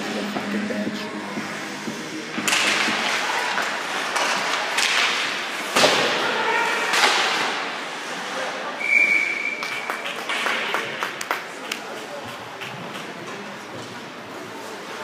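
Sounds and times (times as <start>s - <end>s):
hockey sticks and skates on ice: 1.5s - 8.6s, 9.3s - 15.0s
whistle blowing: 8.8s - 9.9s.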